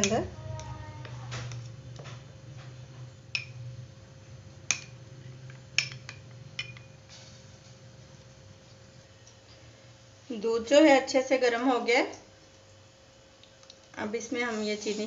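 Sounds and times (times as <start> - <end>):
spoon clinking against glass: 5.8 - 7.0.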